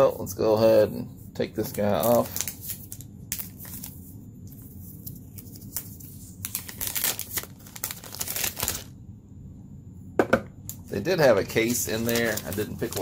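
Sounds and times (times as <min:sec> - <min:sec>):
plastic film peeling and crinkling: 0:01.6 - 0:08.9, 0:11.5 - 0:13.0.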